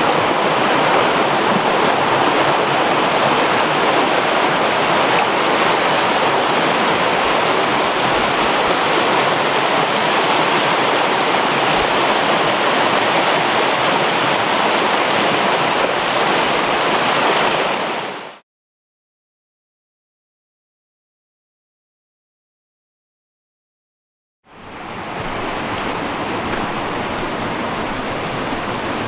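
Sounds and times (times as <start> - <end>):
stream rushing over rocks: 0.0 - 18.4, 24.5 - 29.0.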